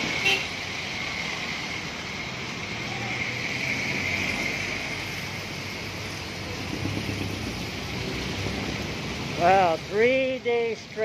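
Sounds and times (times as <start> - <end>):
rain on a wet street: 0.0 - 11.0
traffic on a wet road: 0.0 - 11.0.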